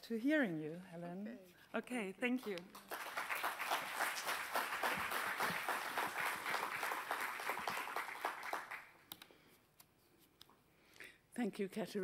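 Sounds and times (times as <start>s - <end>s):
audience applauding: 2.6s - 9.0s.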